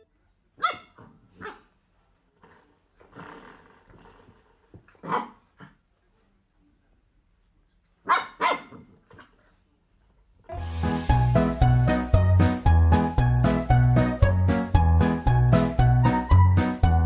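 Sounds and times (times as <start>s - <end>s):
puppy barking: 0.6s - 1.7s, 5.0s - 5.4s, 8.0s - 8.9s.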